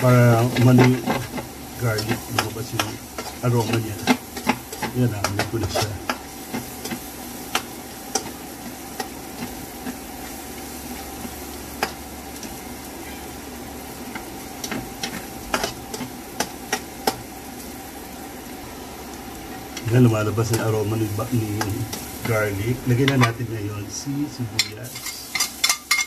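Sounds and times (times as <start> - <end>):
garlic sizzling in a frying pan: 0.0 - 26.0
spatula scraping and tapping pan: 0.3 - 12.6, 14.0 - 17.2, 21.5 - 22.4, 23.0 - 23.4.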